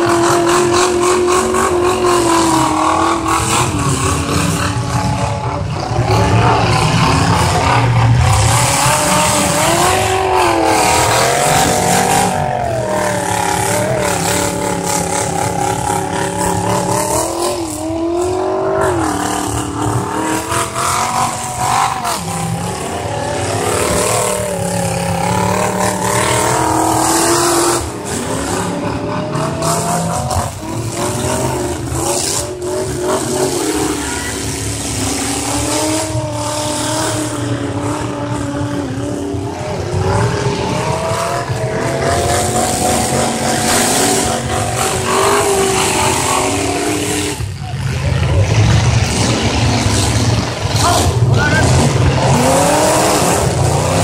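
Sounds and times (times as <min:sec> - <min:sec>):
car engines revving hard: 0:00.0 - 0:54.0.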